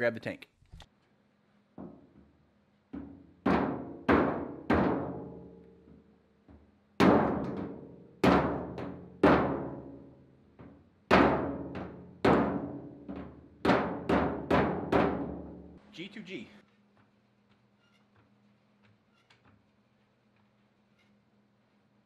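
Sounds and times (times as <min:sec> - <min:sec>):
mallet striking metal tank: 0:03.4 - 0:05.5, 0:07.0 - 0:10.0, 0:11.1 - 0:15.7.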